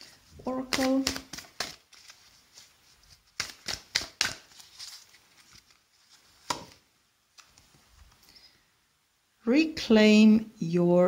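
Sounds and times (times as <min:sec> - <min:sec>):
cards rustling: 0:00.0 - 0:08.2
card snaps and taps: 0:03.4 - 0:04.6, 0:06.4 - 0:06.8.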